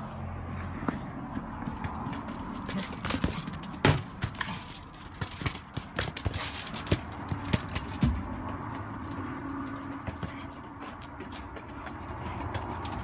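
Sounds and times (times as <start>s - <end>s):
ball knocking on concrete: 0.8s - 13.0s
dog claws clicking on concrete: 1.7s - 8.2s.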